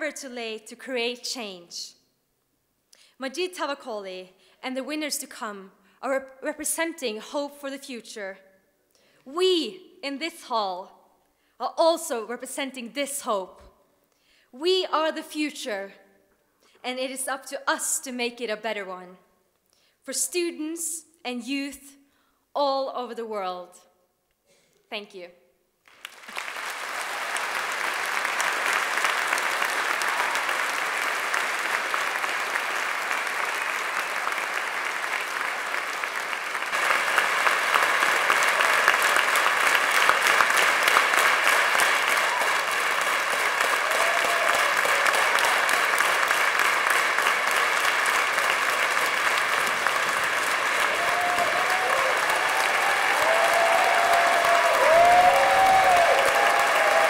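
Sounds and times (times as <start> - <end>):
large audience applauding: 25.8 - 57.0.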